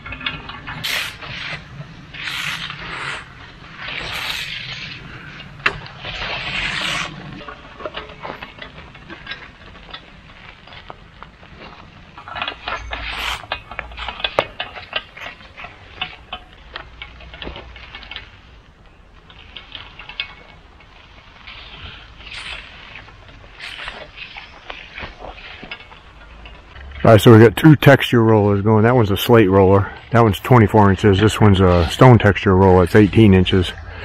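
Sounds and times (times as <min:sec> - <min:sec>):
rollers clicking and rattling: 0:00.0 - 0:34.0
rollers scraping concrete: 0:00.0 - 0:34.0.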